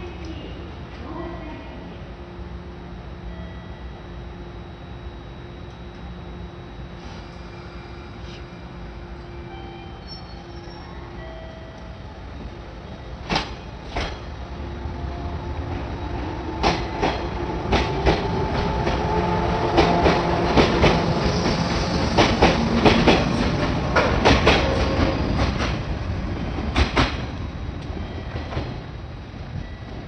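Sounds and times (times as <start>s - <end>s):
train rumble: 6.0s - 30.0s.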